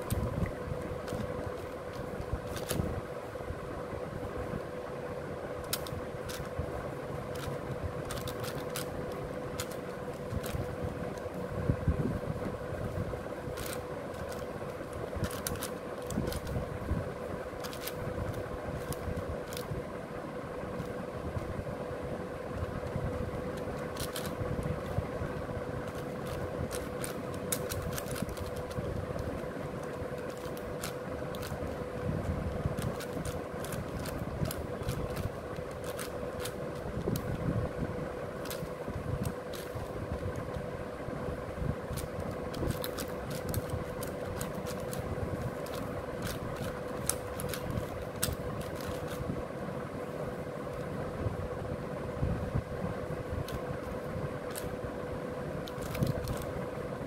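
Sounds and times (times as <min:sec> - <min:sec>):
constant hum: 0:00.0 - 0:57.0
puzzle cube clicking: 0:01.0 - 0:02.8, 0:05.6 - 0:06.5, 0:07.3 - 0:11.2, 0:13.5 - 0:14.5, 0:15.2 - 0:16.6, 0:17.6 - 0:19.7, 0:23.5 - 0:25.0, 0:25.8 - 0:31.8, 0:32.7 - 0:37.4, 0:38.4 - 0:40.6, 0:41.9 - 0:49.2, 0:53.5 - 0:54.7, 0:55.6 - 0:56.5.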